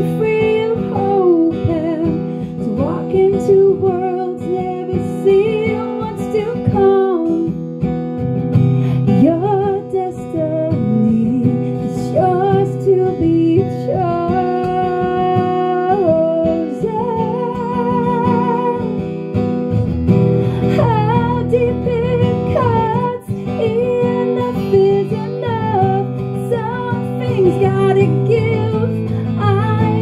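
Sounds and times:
strummed acoustic guitar: 0.0s - 30.0s
woman singing: 0.0s - 30.0s.

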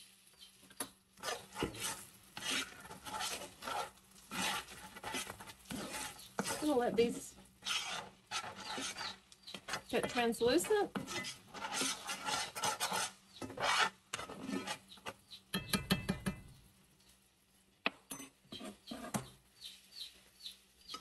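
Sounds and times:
metal spoon stirring in skillet: 0.0s - 16.6s, 18.0s - 21.0s.

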